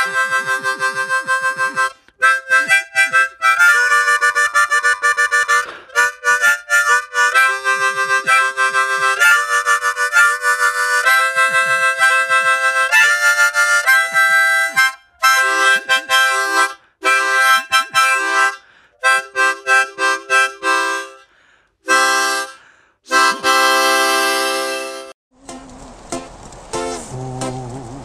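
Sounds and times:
instrumental chords: 0:00.0 - 0:28.0.

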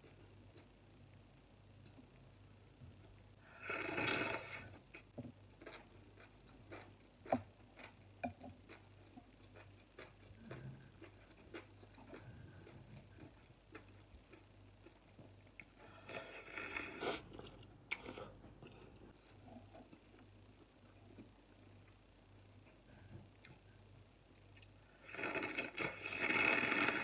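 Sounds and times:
person slurping noodles: 0:03.6 - 0:04.7, 0:16.0 - 0:17.3, 0:25.0 - 0:27.0
wet chewing and mouth clicks: 0:04.9 - 0:15.8.

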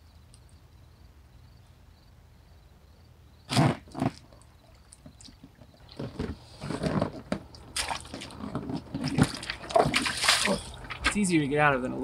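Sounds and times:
water sloshing: 0:04.0 - 0:11.3
rustles and bumps: 0:05.0 - 0:11.4.

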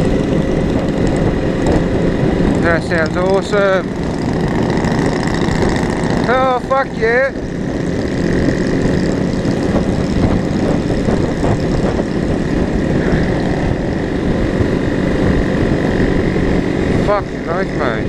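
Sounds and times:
motorcycle engine running: 0:00.0 - 0:18.0
wind rush: 0:00.0 - 0:18.0.

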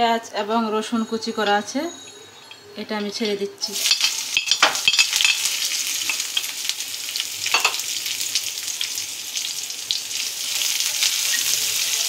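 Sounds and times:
onion and garlic sizzling in oil: 0:02.8 - 0:12.0.

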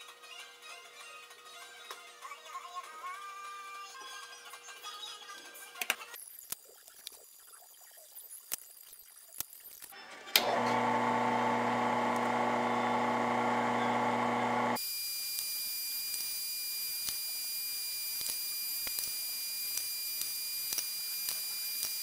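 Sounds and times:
drill press motor humming: 0:10.4 - 0:14.8.

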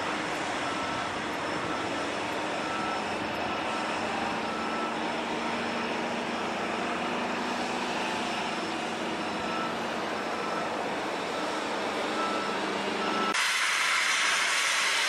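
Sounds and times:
distant diesel locomotive drone: 0:00.0 - 0:15.0
hiss: 0:13.4 - 0:15.0.

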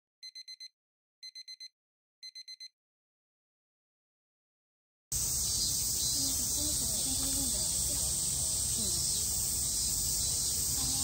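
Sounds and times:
electronic alarm beeping: 0:00.2 - 0:02.7
cicadas droning: 0:05.1 - 0:11.0.

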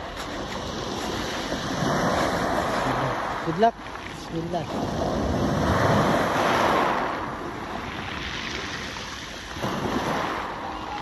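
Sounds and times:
small waves washing ashore: 0:00.0 - 0:11.0
wind on microphone: 0:04.6 - 0:11.0.

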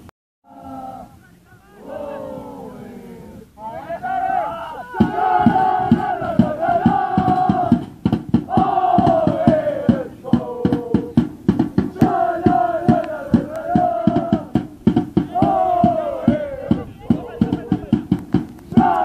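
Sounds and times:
supporters chanting in unison: 0:00.5 - 0:18.0, 0:18.7 - 0:19.0
drum beating fast rhythm: 0:04.9 - 0:19.0.

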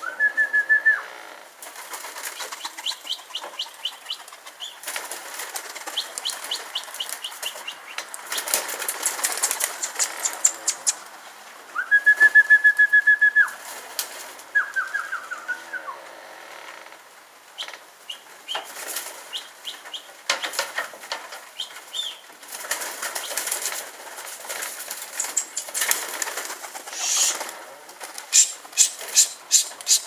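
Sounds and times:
pigeon wings flapping: 0:01.6 - 0:11.0, 0:18.5 - 0:30.0
short chirping calls: 0:02.4 - 0:04.8, 0:05.9 - 0:11.0, 0:21.6 - 0:22.2, 0:25.2 - 0:25.8, 0:26.9 - 0:27.4, 0:28.3 - 0:30.0.

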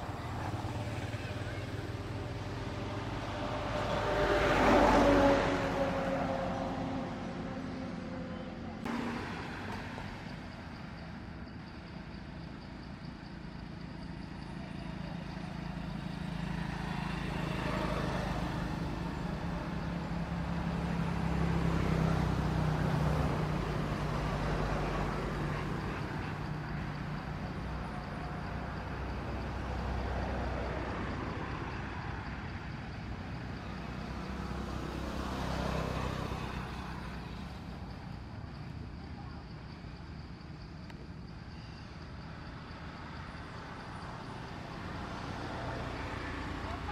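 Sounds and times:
vehicle engines rumbling: 0:00.0 - 0:46.9.

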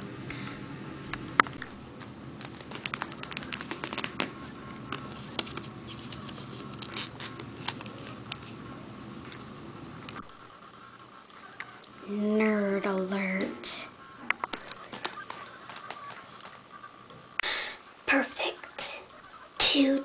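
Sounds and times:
handling noise crackles and clicks: 0:01.4 - 0:08.6.

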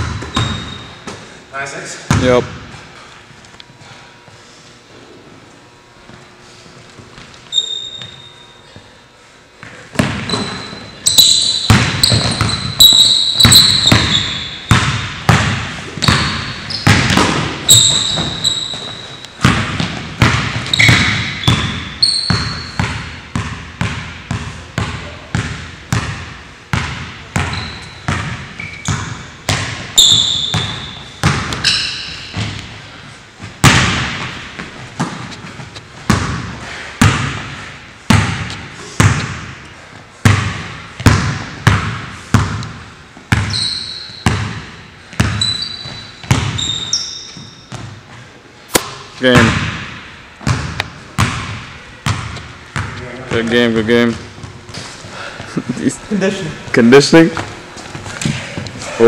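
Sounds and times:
basketball bouncing on wooden floor: 0:00.0 - 0:01.2, 0:10.0 - 0:10.8, 0:11.6 - 0:31.7, 0:36.0 - 0:37.5, 0:40.2 - 0:43.6, 0:44.2 - 0:48.0, 0:49.4 - 0:53.0
sneakers squeaking on floor: 0:00.0 - 0:01.3, 0:06.1 - 0:09.0, 0:09.6 - 0:36.5, 0:43.2 - 0:48.3.

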